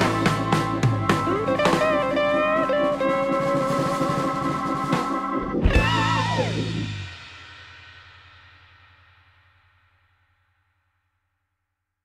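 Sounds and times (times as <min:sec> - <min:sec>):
rock music with electric guitar: 0:00.0 - 0:07.3.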